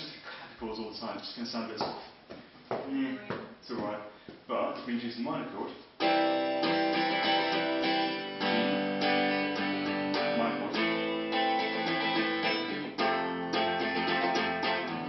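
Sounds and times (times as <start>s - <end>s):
clean electric guitar strumming: 6.0s - 15.0s.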